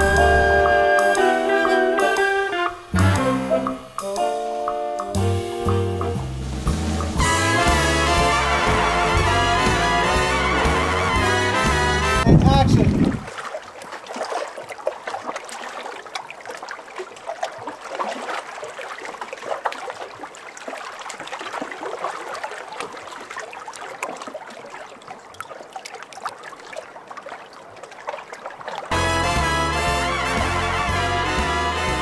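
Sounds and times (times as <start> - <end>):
water lapping around boat: 0.0 - 31.5
small splashes: 12.7 - 29.5.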